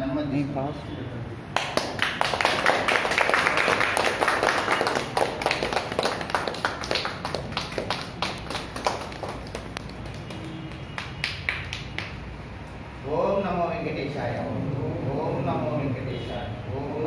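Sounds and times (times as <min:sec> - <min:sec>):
small group clapping: 0:01.5 - 0:12.8.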